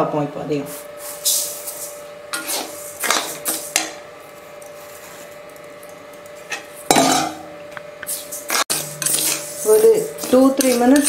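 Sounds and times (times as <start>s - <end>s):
spoon scraping rice in metal pan: 2.4s - 4.0s, 8.0s - 11.0s.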